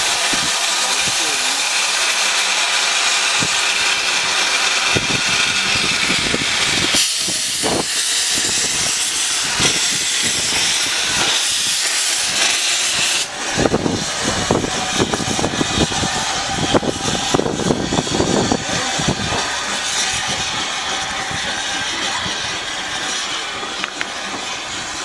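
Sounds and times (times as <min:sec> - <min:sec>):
steam locomotive hissing: 0:00.0 - 0:25.0.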